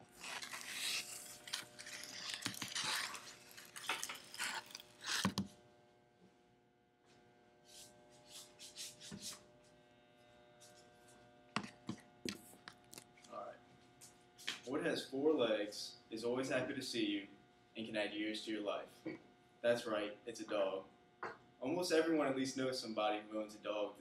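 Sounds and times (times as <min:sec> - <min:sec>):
rustling and scraping handling noise: 0:00.0 - 0:05.5
steady room hum: 0:00.0 - 0:24.0.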